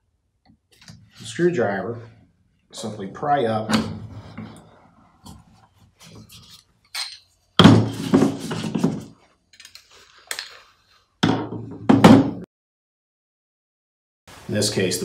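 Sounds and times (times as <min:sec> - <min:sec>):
metal scraping and clinking: 0:06.0 - 0:10.8.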